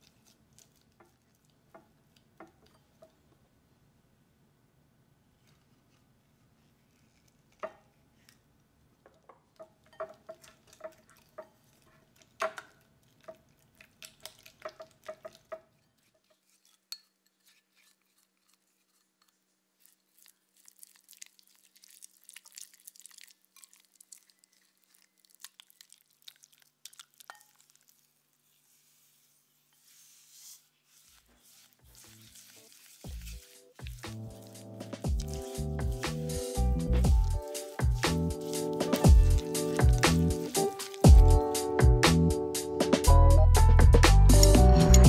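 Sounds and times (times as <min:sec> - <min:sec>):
wet crackling of stirred batter: 0:00.0 - 0:03.6, 0:05.3 - 0:43.1
spatula scraping glass bowl: 0:14.2 - 0:20.2, 0:29.7 - 0:41.8.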